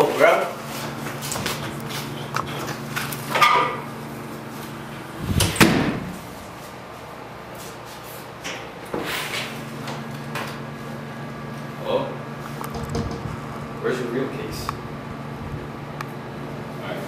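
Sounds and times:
door closing with thud: 0:05.3 - 0:06.2, 0:12.7 - 0:13.3.

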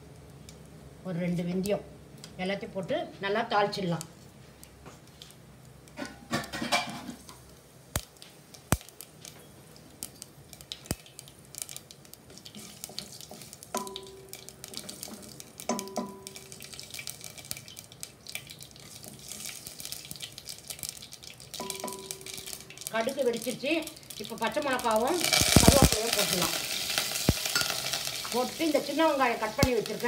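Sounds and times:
seeds spluttering in hot oil: 0:03.6 - 0:30.0
sharp pops: 0:07.9 - 0:09.3, 0:25.2 - 0:28.4.

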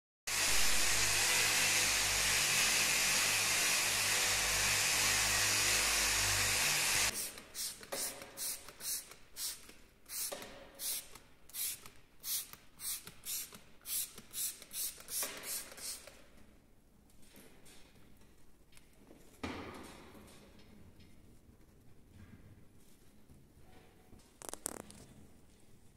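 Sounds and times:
spray bottle squirts: 0:07.1 - 0:16.2.

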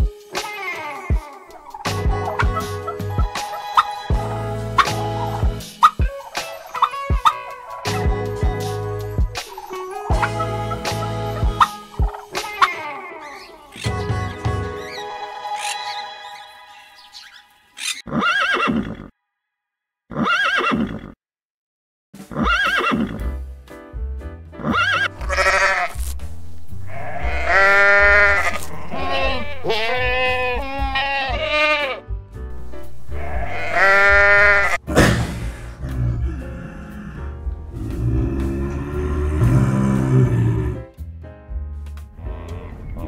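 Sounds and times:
background music: 0:00.0 - 0:18.0, 0:22.2 - 0:43.0
goat bleating: 0:24.7 - 0:26.0, 0:26.9 - 0:32.0, 0:33.2 - 0:34.8.

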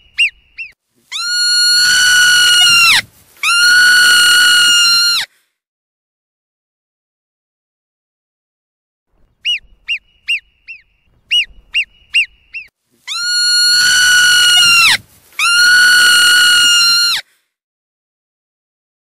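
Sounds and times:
marmot whistling: 0:00.0 - 0:03.0, 0:09.4 - 0:17.0
marmot chirps: 0:00.0 - 0:03.6, 0:09.3 - 0:15.8.

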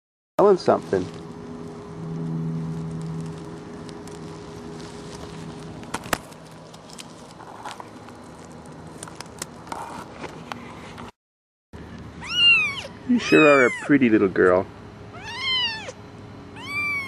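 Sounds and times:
dry straw crackling: 0:00.4 - 0:10.9.

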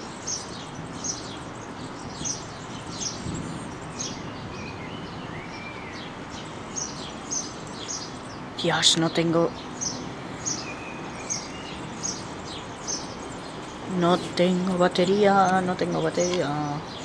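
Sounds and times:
soft whistled bird notes: 0:00.0 - 0:08.4, 0:09.6 - 0:14.4
outdoor background noise: 0:00.0 - 0:17.0
small birds chirping: 0:00.0 - 0:17.0.

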